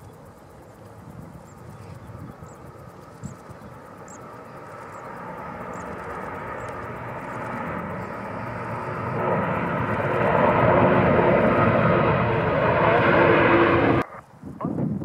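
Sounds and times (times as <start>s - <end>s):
jet engine rumble: 0.0s - 15.0s
faint high chirp: 1.4s - 9.2s.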